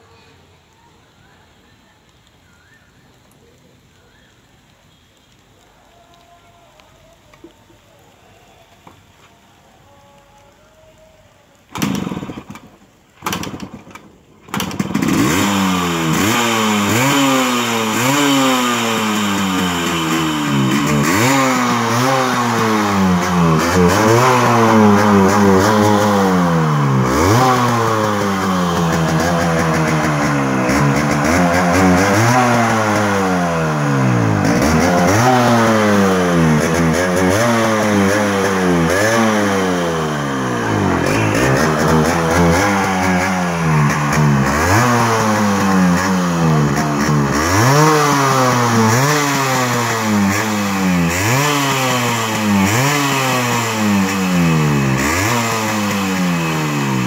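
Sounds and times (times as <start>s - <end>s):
motorcycle engine starting and revving: 11.7s - 57.0s.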